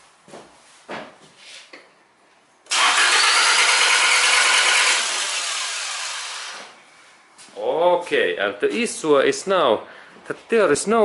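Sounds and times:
car engine cranking without starting: 2.7 - 6.7.

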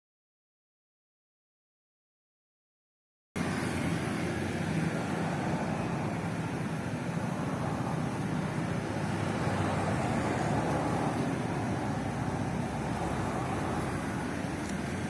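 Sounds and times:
passing motorbikes and cars: 3.4 - 15.0.

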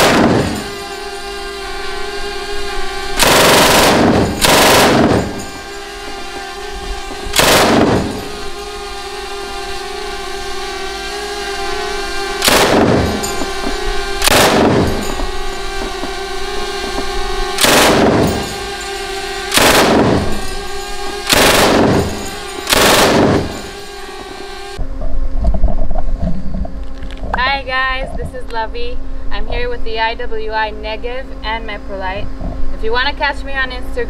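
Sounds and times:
machine gun firing bursts: 0.0 - 1.4, 3.1 - 6.5, 7.2 - 8.7, 12.3 - 24.8.

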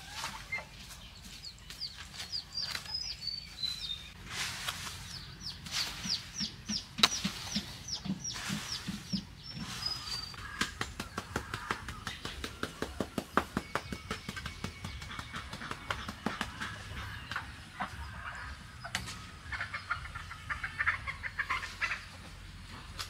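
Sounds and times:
bird peeping: 0.0 - 4.2, 4.8 - 22.2.

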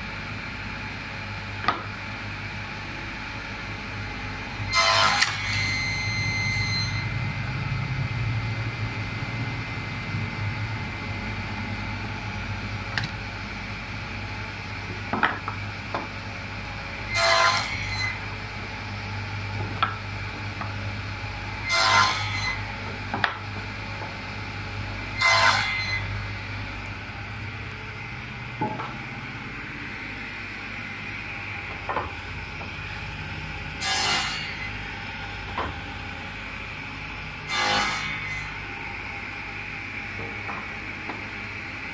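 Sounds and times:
table saw cutting wood: 4.6 - 7.0, 17.1 - 18.3, 21.6 - 22.8, 25.1 - 26.2, 33.8 - 35.0, 37.4 - 38.6.

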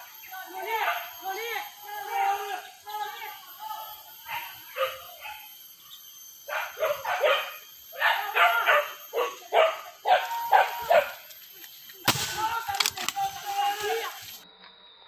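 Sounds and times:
dogs barking: 4.2 - 5.5, 6.5 - 11.2.

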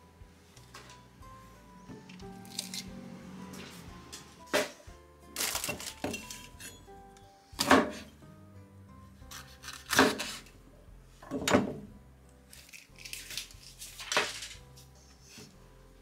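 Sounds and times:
faint background music: 0.0 - 16.0
knife chopping on wooden board: 7.6 - 8.1, 9.3 - 10.4.

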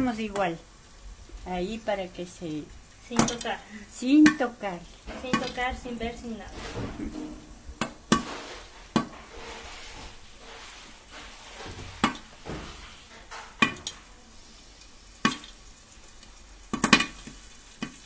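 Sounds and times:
corn kernels popping in a pot: 0.0 - 0.7, 1.4 - 6.5, 7.4 - 9.3, 12.0 - 18.0
faint steady sizzle: 0.0 - 18.0.

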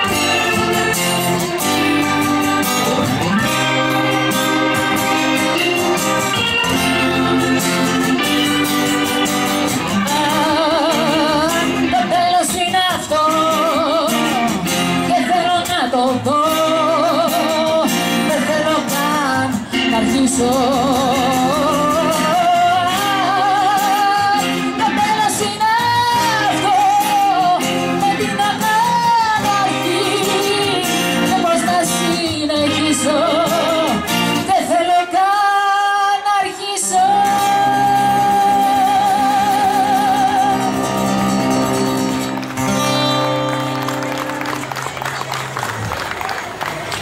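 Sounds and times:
keyboard accompaniment: 0.0 - 35.2, 37.0 - 47.0
acoustic guitar: 0.0 - 47.0
woman singing a ballad: 9.8 - 41.1.

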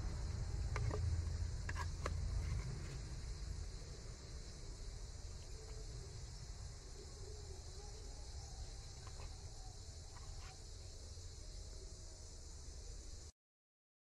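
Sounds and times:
low rumble: 0.0 - 2.6
steady high hiss: 0.0 - 13.3.

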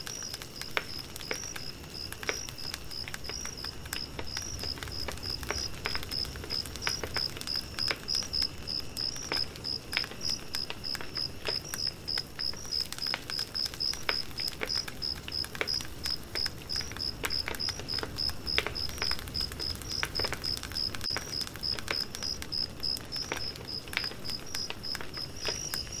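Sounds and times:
campfire crackling and popping: 0.0 - 26.0
cricket chirping: 0.0 - 26.0.

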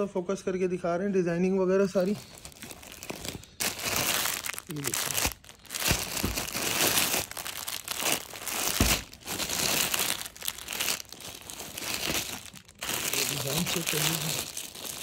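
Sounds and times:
plastic packaging crinkling: 1.8 - 15.0.

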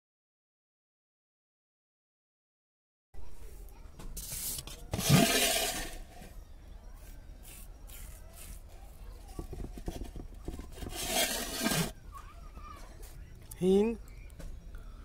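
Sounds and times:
batter stirred in steel vessel: 4.2 - 6.2, 9.4 - 12.0.

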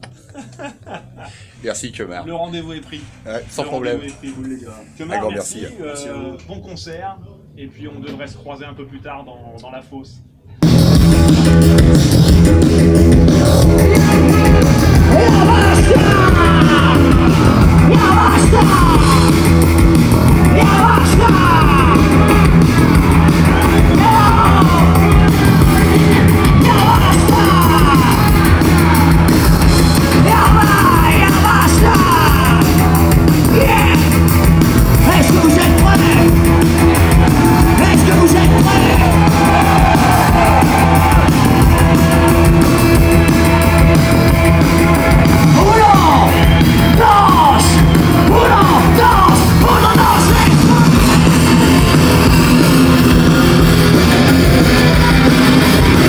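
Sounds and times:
live rock band playing: 10.6 - 56.0
singer shouting and singing: 13.9 - 19.4, 20.4 - 29.0, 30.0 - 43.3, 45.2 - 56.0.

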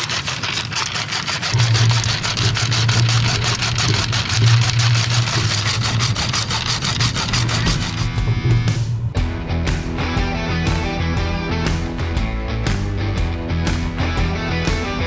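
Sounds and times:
hacksaw cutting metal: 0.0 - 8.4
music: 7.6 - 15.0.

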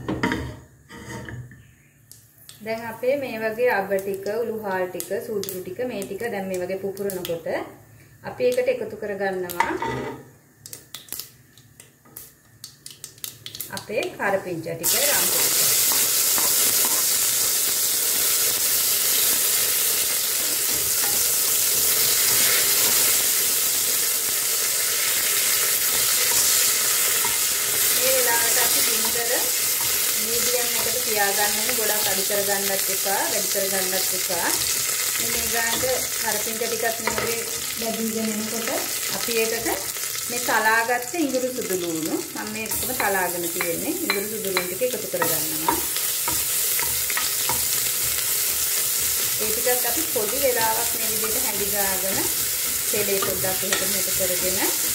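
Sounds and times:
spoon scraping a pot: 0.9 - 1.5
leaves sizzling in hot oil: 2.4 - 7.4, 12.1 - 54.9.

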